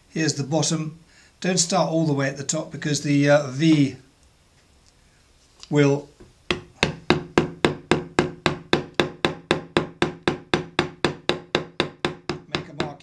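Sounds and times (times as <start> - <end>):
hammer tapping chisel handle: 6.5 - 13.0.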